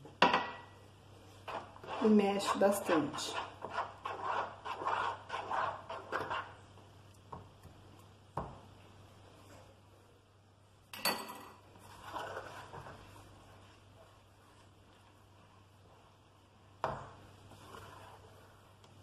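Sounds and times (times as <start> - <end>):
spoon scraping in plastic bowl: 1.4 - 6.6, 11.8 - 13.2.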